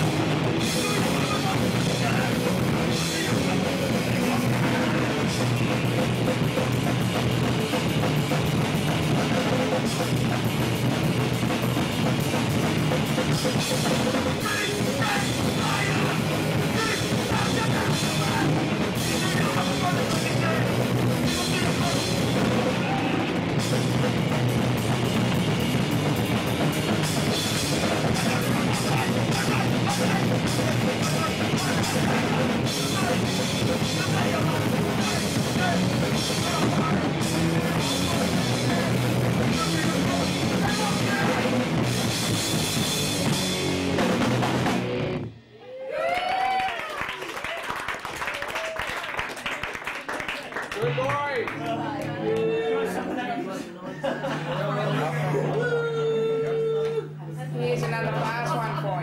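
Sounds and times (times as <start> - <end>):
pounding drum kit: 0.0 - 45.4
distorted electric guitars: 0.0 - 45.6
singer shouting: 14.3 - 23.5, 27.5 - 41.8, 55.3 - 57.2.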